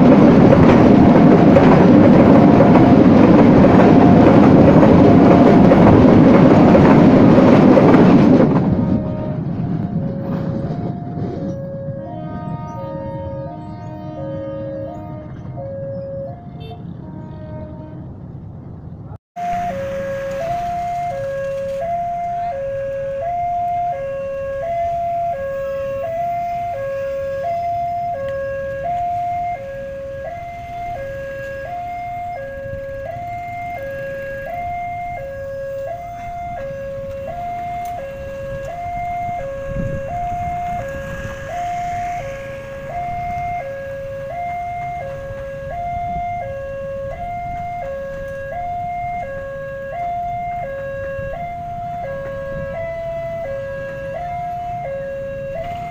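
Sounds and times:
road traffic rumble: 0.0s - 55.9s
vehicle passing close by: 36.8s - 47.4s.

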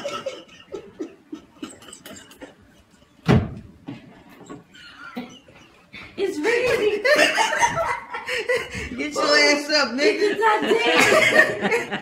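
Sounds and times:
loud thump: 3.2s - 3.7s.

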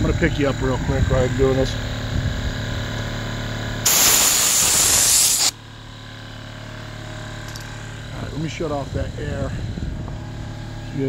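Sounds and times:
air compressor humming: 0.0s - 11.0s
compressed air blow gun hiss: 3.8s - 5.6s.

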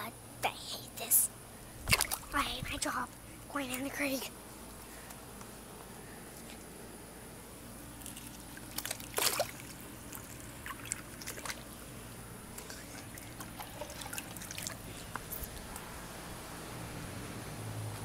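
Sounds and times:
creek water trickling and sloshing: 1.6s - 4.1s, 7.8s - 18.0s.

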